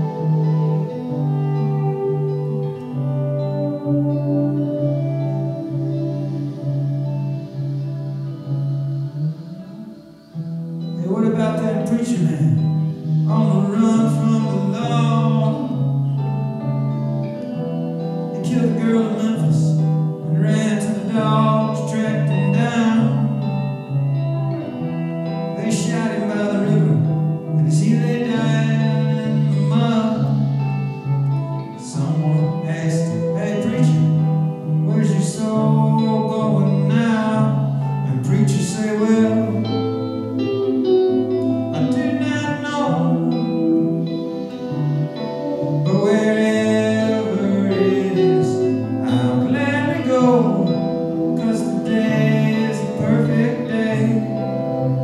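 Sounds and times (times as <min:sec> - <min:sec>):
guitar: 0:00.0 - 0:55.0
man singing: 0:10.9 - 0:16.0, 0:18.3 - 0:23.9, 0:25.5 - 0:55.0.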